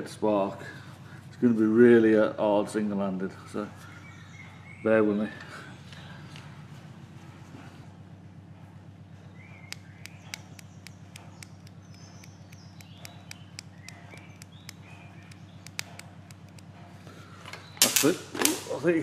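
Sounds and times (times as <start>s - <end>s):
birds chirping: 0.0s - 19.0s
steady low hum: 0.0s - 19.0s
sharp electrical clicks and snaps: 9.7s - 16.7s.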